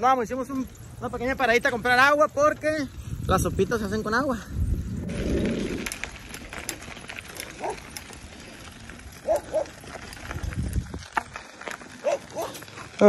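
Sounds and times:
bicycles ticking and rattling: 0.0s - 13.0s
dog barking: 7.6s - 7.8s, 9.2s - 9.7s, 12.0s - 12.6s.

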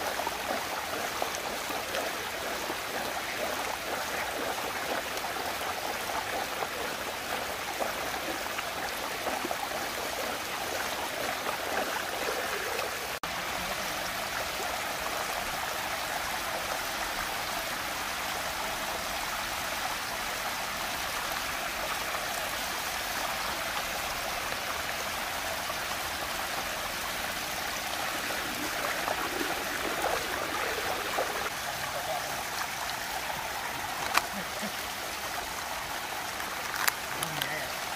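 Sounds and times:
water rushing down whirlpool: 0.0s - 37.9s.

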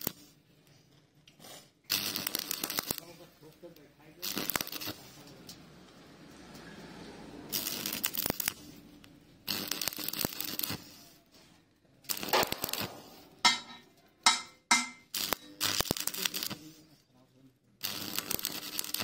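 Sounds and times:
welding arc crackling: 0.0s - 0.4s, 1.9s - 3.6s, 4.2s - 5.3s, 7.5s - 11.0s, 12.0s - 16.8s, 17.8s - 19.0s.

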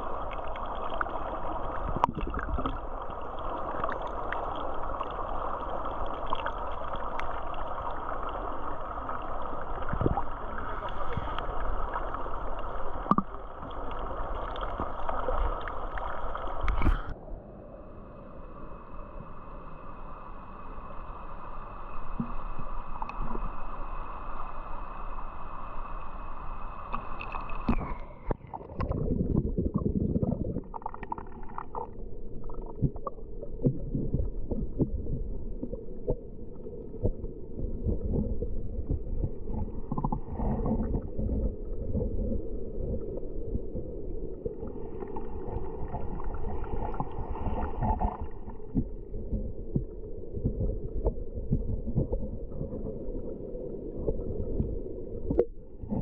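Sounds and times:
underwater gurgling and rumbling: 0.0s - 56.0s
steady high whine with hiss: 17.3s - 27.6s.

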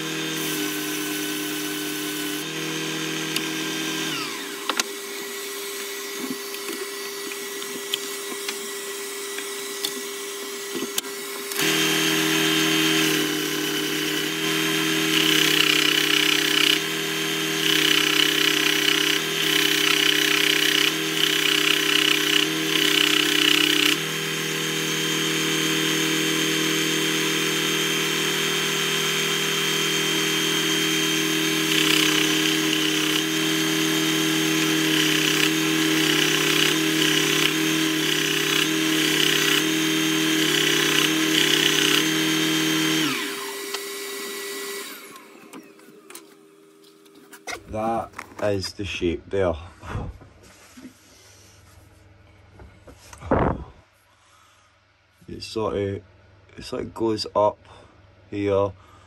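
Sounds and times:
belt sander running: 0.0s - 46.8s.

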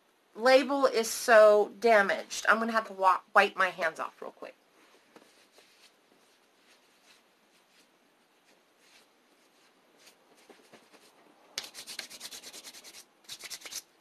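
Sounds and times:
faint rustling and handling: 4.6s - 11.6s
hands rubbing: 4.9s - 13.9s.

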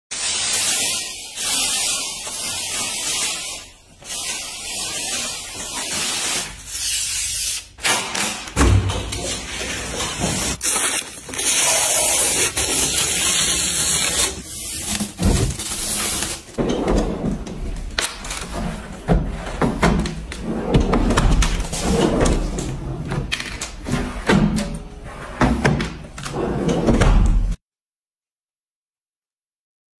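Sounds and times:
plastic film crinkling: 10.6s - 16.4s.

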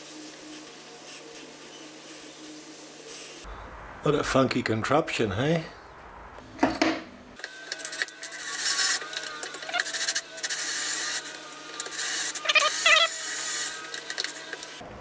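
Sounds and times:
electric drill boring metal: 7.4s - 14.8s.

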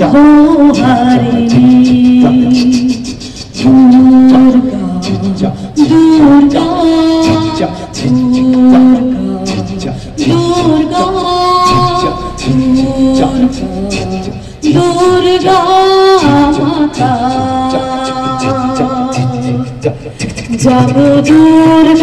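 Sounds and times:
people singing through microphones: 0.0s - 22.0s
percussion hits: 0.0s - 22.0s.

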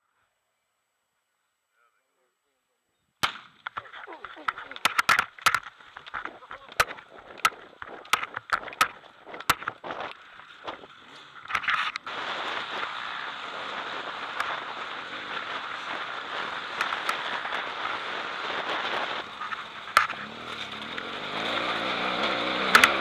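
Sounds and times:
background voices: 3.8s - 23.0s
motorcycle engine and wind rush: 6.1s - 23.0s.

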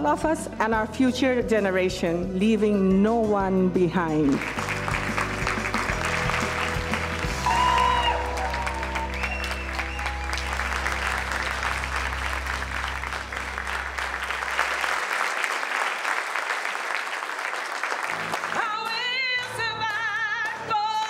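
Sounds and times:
audience applauding: 4.3s - 19.2s.

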